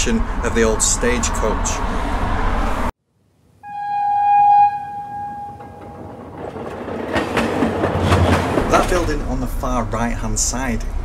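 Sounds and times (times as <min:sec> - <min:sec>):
street noise: 0:00.0 - 0:02.9, 0:04.6 - 0:11.0
train horn: 0:03.6 - 0:06.0
low rumble: 0:05.6 - 0:11.0.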